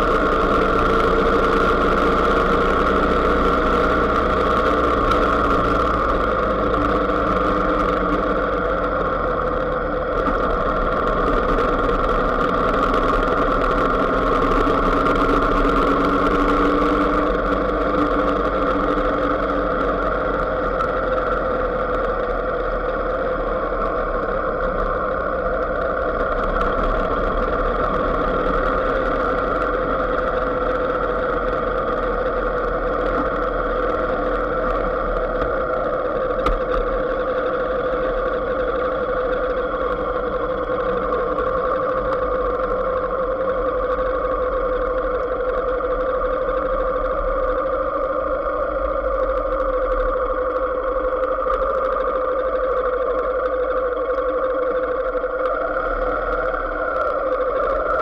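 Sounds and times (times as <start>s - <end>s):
vehicle engine running steadily: 0.0s - 58.0s.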